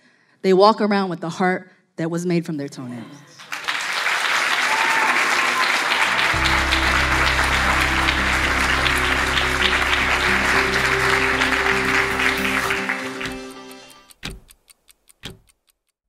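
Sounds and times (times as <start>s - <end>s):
audience applauding: 3.4s - 14.1s
music with low bass: 6.4s - 12.7s.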